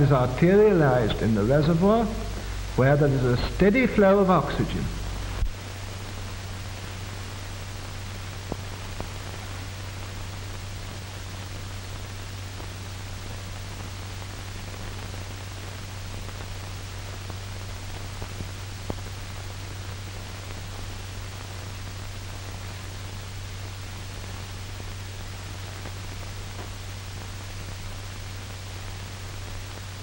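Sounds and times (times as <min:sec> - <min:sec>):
low hum: 0:00.0 - 0:10.5
faint crackles: 0:00.0 - 0:30.0
film soundtrack hiss: 0:00.0 - 0:30.0.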